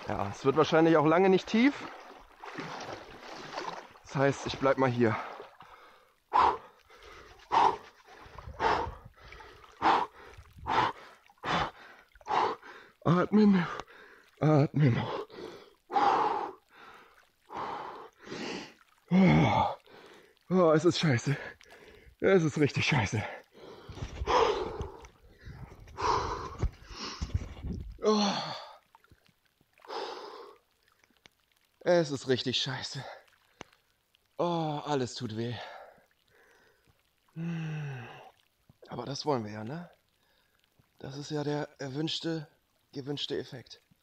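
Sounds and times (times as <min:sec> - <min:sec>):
man gasping for breath: 0:23.6 - 0:27.3.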